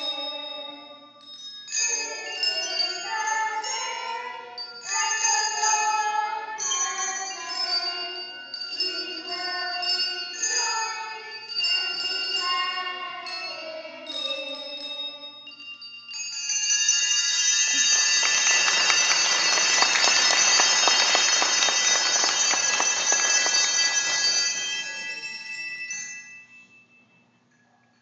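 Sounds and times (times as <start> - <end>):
handbells ringing chord: 0.0 - 27.5
clatter of bell strikes: 16.2 - 27.1.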